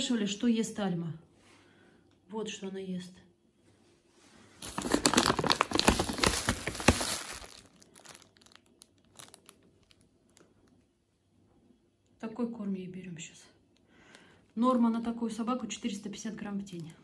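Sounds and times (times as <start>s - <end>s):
plastic sack crinkling: 4.6s - 10.5s.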